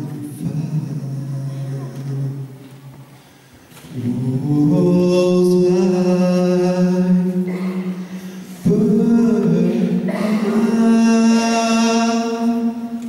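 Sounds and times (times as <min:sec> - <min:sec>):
man singing long held notes: 0:03.9 - 0:13.0.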